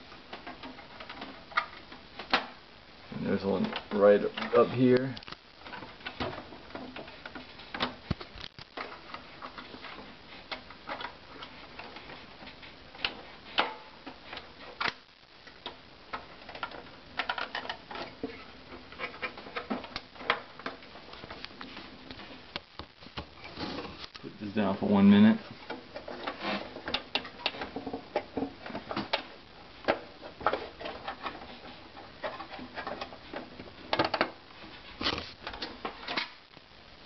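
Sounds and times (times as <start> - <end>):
sharp plastic snaps: 5.0 - 5.4.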